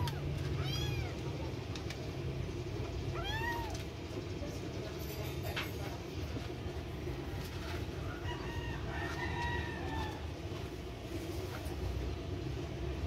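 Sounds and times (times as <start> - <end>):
rooster crowing: 7.9 - 10.5.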